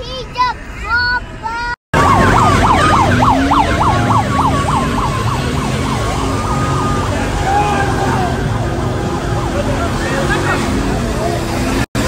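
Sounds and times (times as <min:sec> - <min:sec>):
street noise: 0:00.0 - 0:12.0
siren yelping: 0:01.9 - 0:09.0.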